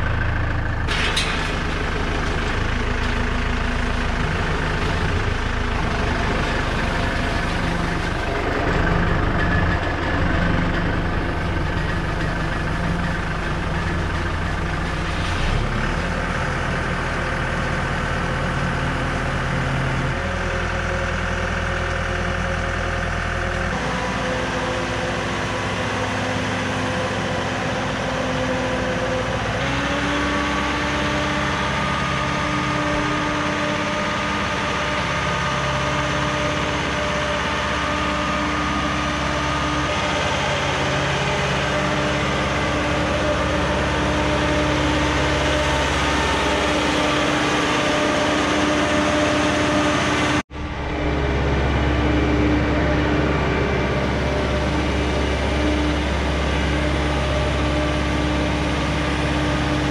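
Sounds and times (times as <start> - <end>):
engine running steadily: 0.0 - 59.9
steady whine: 31.5 - 59.9.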